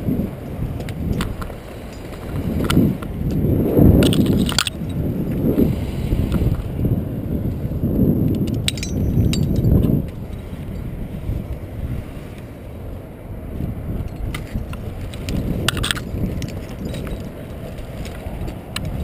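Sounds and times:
wind buffeting microphone: 0.0s - 19.0s
light clicks and clinks: 0.8s - 3.1s, 8.3s - 10.9s, 14.0s - 19.0s.

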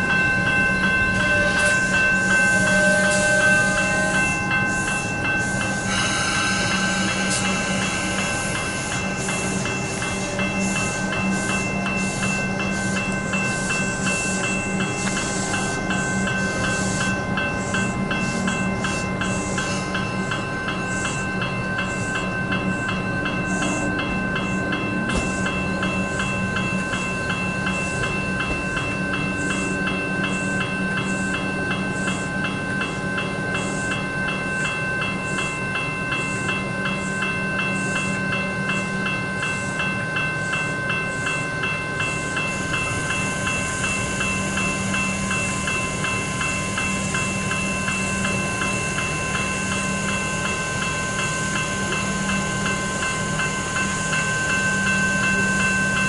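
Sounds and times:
electric train passing: 0.0s - 56.0s
level crossing bells ringing: 0.0s - 56.0s.

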